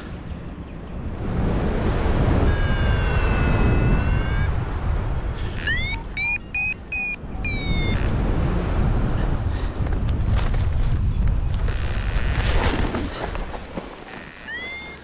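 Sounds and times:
wind buffeting microphone: 0:00.0 - 0:15.0
variometer electronic beeps: 0:05.6 - 0:08.1.

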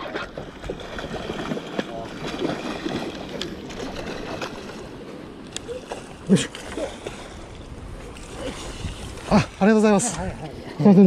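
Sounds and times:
water sloshing: 0:00.0 - 0:11.0
wind on microphone: 0:05.6 - 0:10.8.

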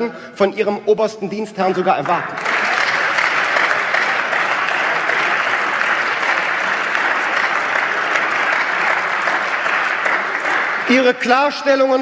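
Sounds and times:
applause: 0:02.0 - 0:12.0.

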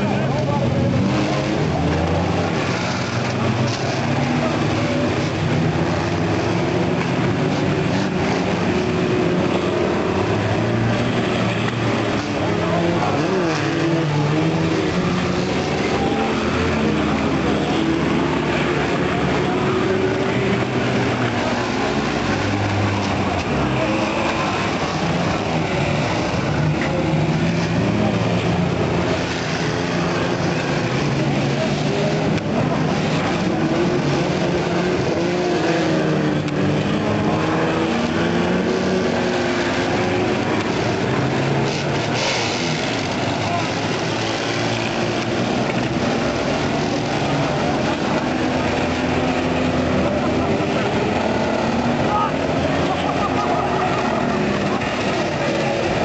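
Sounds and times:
racing car engines revving: 0:00.0 - 0:56.0.

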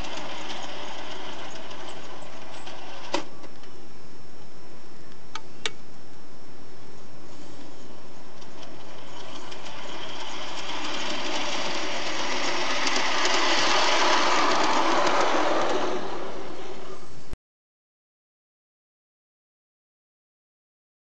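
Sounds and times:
model train motor whirring: 0:00.0 - 0:03.3, 0:07.6 - 0:17.2
wheels clicking over rails: 0:00.0 - 0:03.8, 0:07.8 - 0:17.1.

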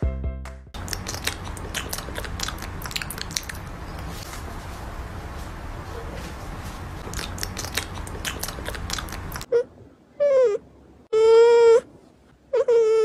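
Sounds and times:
puppy whining: 0:08.4 - 0:13.0.

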